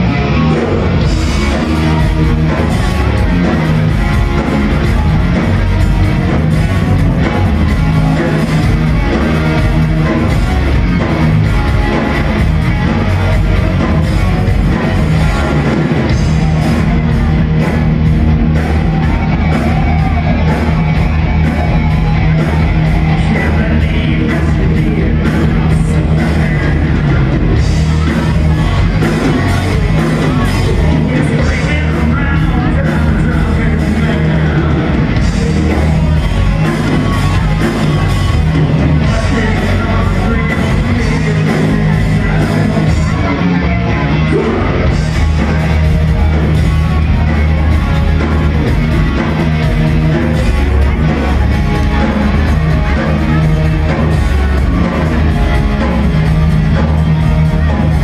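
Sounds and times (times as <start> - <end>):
rock band playing live: 0.0 - 58.0
singer: 18.4 - 58.0.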